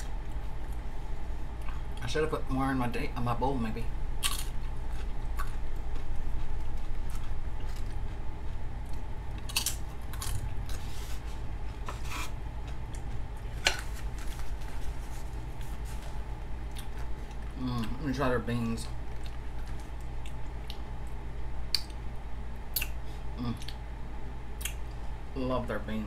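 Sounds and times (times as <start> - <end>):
steady low hum: 0.0 - 26.0
chip crunching while chewed: 4.2 - 11.0, 12.6 - 22.0.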